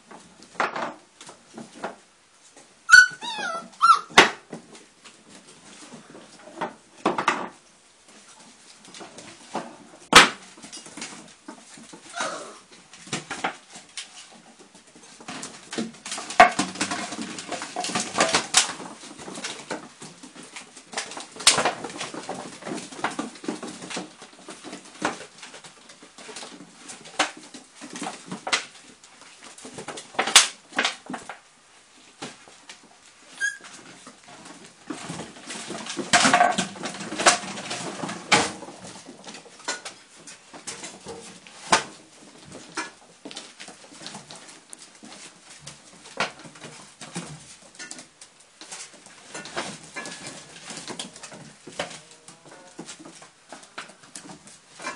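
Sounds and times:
puppies scuffling: 0.0 - 54.9
puppies whimpering: 2.9 - 4.3, 33.4 - 33.7.

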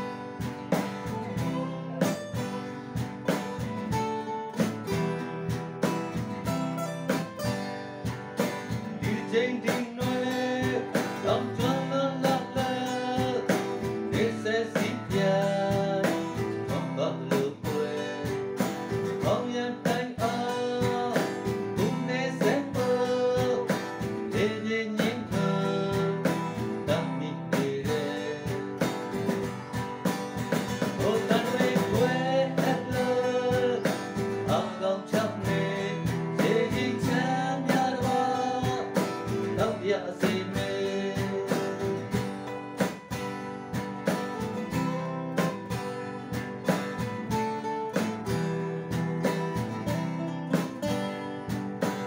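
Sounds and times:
acoustic guitars strumming: 0.0 - 52.0
cajon beat: 0.0 - 52.0
man singing: 1.0 - 2.4, 8.7 - 29.5, 30.5 - 42.6.

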